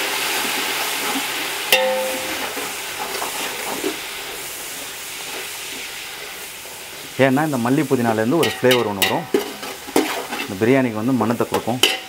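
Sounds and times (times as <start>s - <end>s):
hot oil sizzling: 0.0s - 12.0s
spatula clanging against pot: 1.7s - 2.6s, 8.4s - 10.5s, 11.5s - 12.0s
metal spatula stirring in pot: 1.8s - 3.2s, 8.4s - 12.0s.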